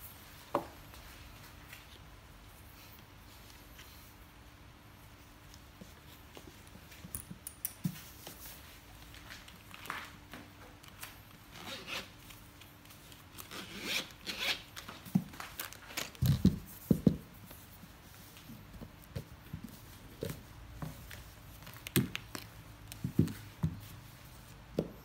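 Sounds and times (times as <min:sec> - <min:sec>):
zipper scraping on case: 0:11.5 - 0:12.1, 0:13.4 - 0:14.6.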